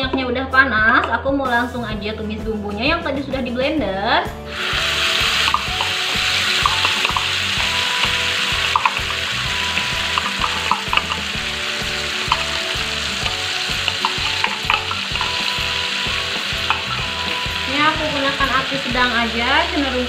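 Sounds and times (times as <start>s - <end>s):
spice paste sizzling in oil: 4.5s - 20.0s.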